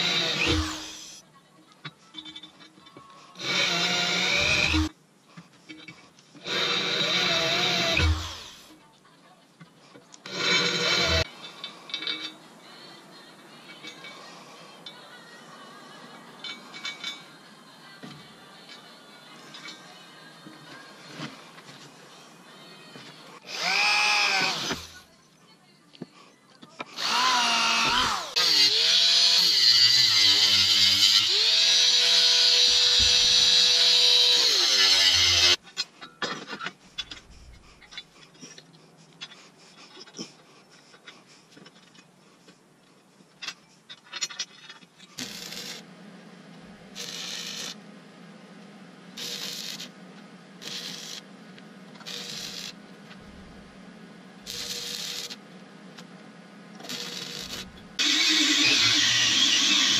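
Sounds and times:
cordless drill boring through steel: 0.0s - 1.2s, 3.4s - 4.9s, 6.4s - 8.7s, 10.2s - 11.3s, 23.4s - 25.0s, 27.0s - 35.6s, 45.2s - 45.8s, 47.0s - 47.8s, 49.2s - 49.9s, 50.6s - 51.2s, 52.0s - 52.8s, 54.5s - 55.4s, 56.8s - 59.9s
welder crackling bursts: 10.2s - 11.3s, 23.4s - 25.0s, 27.0s - 35.6s, 45.2s - 45.9s, 46.9s - 47.8s, 49.2s - 50.0s, 50.6s - 51.3s, 52.0s - 53.6s, 54.5s - 55.4s, 56.8s - 59.9s
steady electrical hum: 44.0s - 59.6s.

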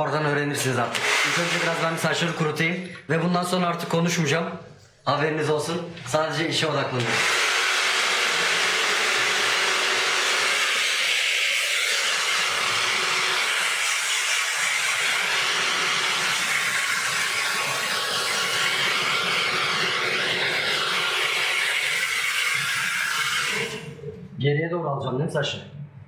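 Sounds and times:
hair dryer blowing: 0.8s - 2.5s, 6.9s - 24.0s.

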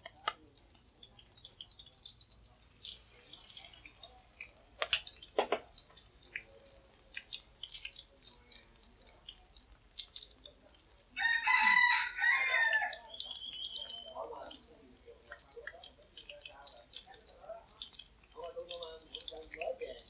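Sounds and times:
patties frying in hot oil: 0.0s - 20.0s
rooster crowing: 11.2s - 13.2s.

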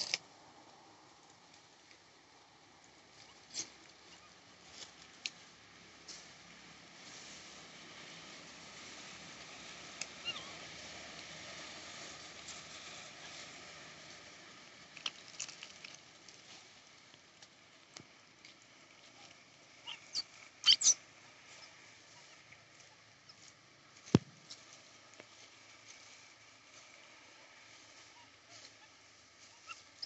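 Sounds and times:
faint outdoor hiss: 0.0s - 30.0s
monkey squeaks: 19.8s - 21.0s.

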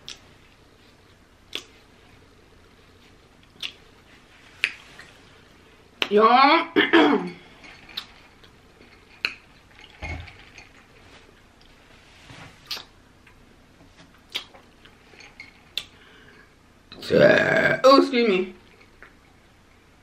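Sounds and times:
person chewing food: 0.0s - 5.3s, 7.5s - 10.0s, 14.1s - 16.5s.

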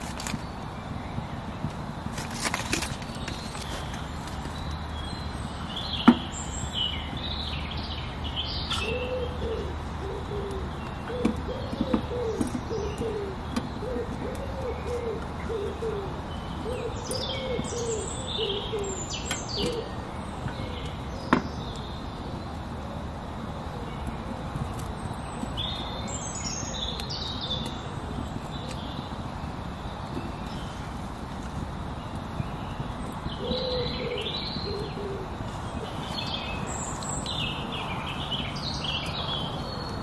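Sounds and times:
songbirds chirping: 0.0s - 40.0s
dove cooing: 8.8s - 19.9s, 33.4s - 36.2s.

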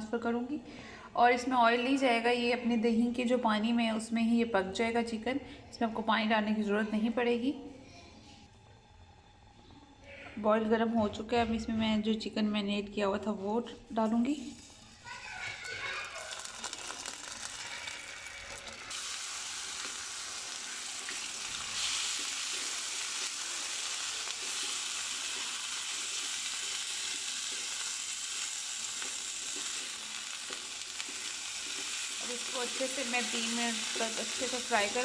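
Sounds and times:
meat sizzling in hot oil: 14.6s - 35.0s.

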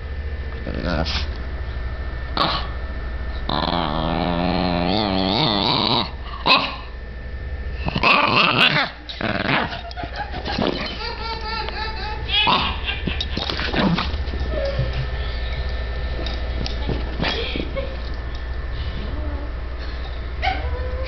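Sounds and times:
dog growling: 2.4s - 2.8s, 3.4s - 7.0s, 7.8s - 18.0s, 18.7s - 21.0s.

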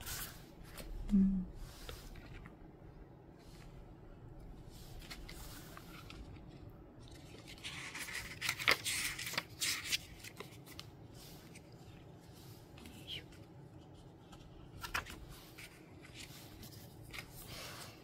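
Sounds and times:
crinkly paper and plastic rustling: 4.7s - 18.0s.

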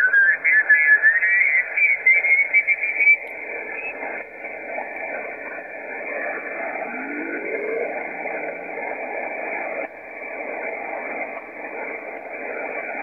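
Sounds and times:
radio band noise hiss: 0.0s - 13.0s.

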